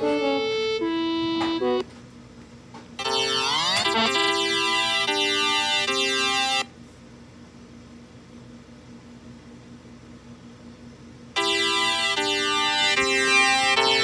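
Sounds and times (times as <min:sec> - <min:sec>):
synthesizer tones: 0:00.0 - 0:01.8, 0:03.0 - 0:06.6, 0:11.4 - 0:14.0.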